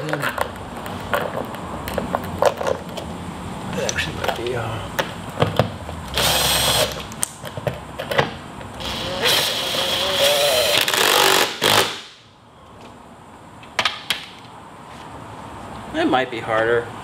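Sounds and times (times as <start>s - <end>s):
cordless drill whining: 6.2s - 7.0s, 8.8s - 11.9s.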